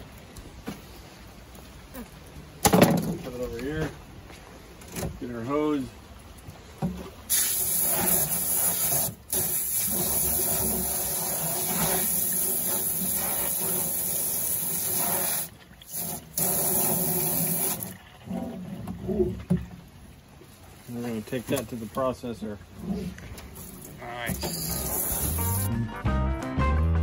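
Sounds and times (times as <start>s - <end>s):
water spraying from hose nozzle: 7.3s - 18.0s, 23.5s - 25.7s.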